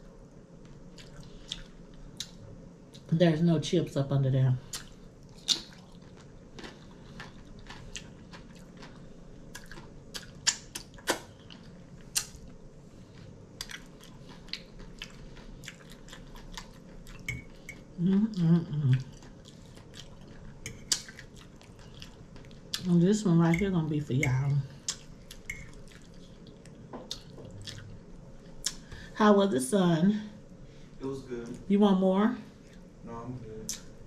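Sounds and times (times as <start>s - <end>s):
chewing crunchy food: 0.6s - 3.1s, 4.7s - 23.0s, 23.6s - 28.9s
wet mouth clicks: 12.1s - 12.4s.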